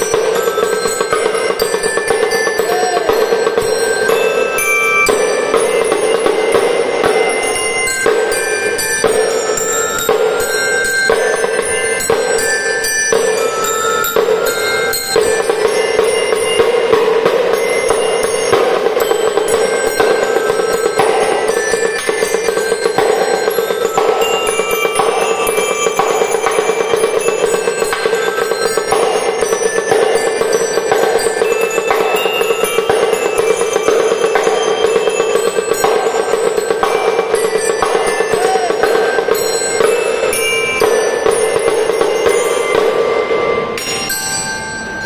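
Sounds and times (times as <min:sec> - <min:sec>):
bell-lyre melody: 0:00.0 - 0:45.0.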